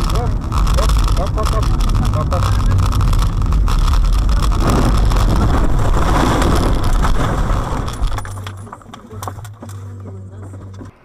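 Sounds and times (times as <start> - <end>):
car rolling over in snow: 0.0 - 9.2
wind noise: 0.0 - 9.6
road rumble inside car: 0.0 - 11.0.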